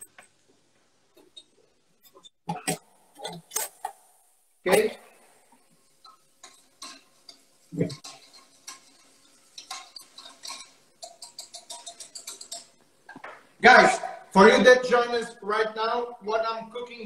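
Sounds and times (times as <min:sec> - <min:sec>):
utensil scraping saucepan: 0:04.7 - 0:13.2.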